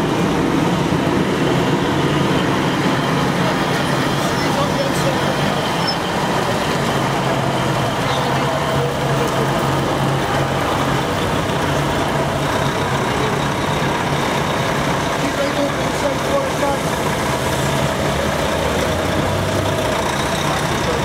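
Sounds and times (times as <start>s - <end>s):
diesel truck engines running: 0.0s - 21.0s.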